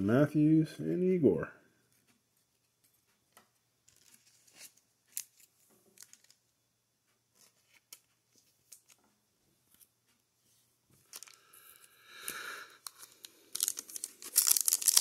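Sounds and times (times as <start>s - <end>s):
card wrappers crinkling: 3.9s - 6.4s, 11.0s - 15.0s.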